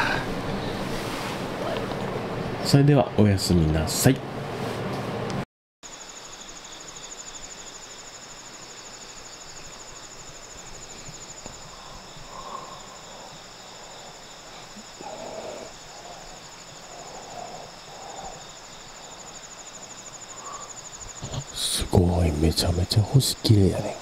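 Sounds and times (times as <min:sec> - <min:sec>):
faint insect songs: 0:05.8 - 0:24.0
high pulsing insect trill: 0:05.8 - 0:24.0.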